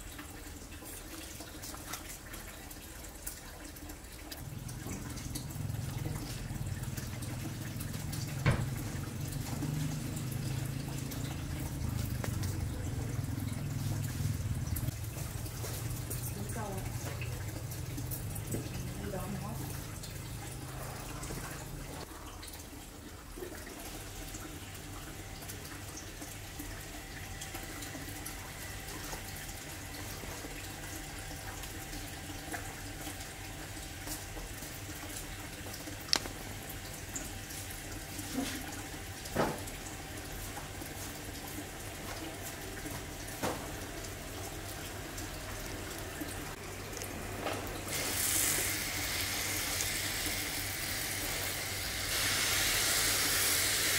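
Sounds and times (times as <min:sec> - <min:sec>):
water spray hissing: 0:47.9 - 0:53.9.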